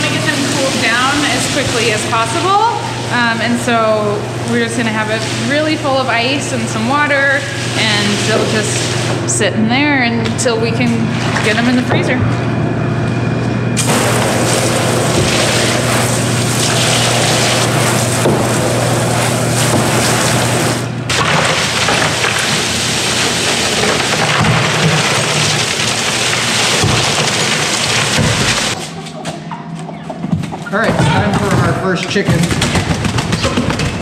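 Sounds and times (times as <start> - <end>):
hose spraying water into tank: 0.0 - 9.2, 13.8 - 28.9
steady low hum: 0.0 - 27.2
ice cubes clattering into water: 21.1 - 28.8.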